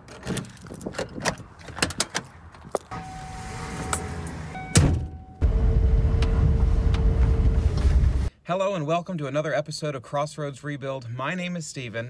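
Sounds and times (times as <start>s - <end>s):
road noise inside car cabin: 1.2s - 8.3s
car door shutting: 2.9s - 5.3s
rising hum: 2.9s - 8.3s.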